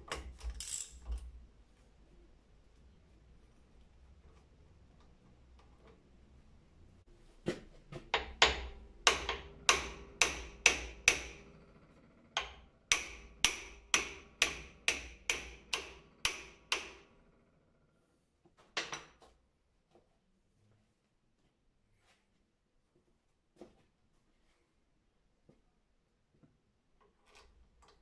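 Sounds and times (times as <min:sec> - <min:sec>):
hammer striking metal: 0:08.2 - 0:11.7, 0:12.4 - 0:17.2.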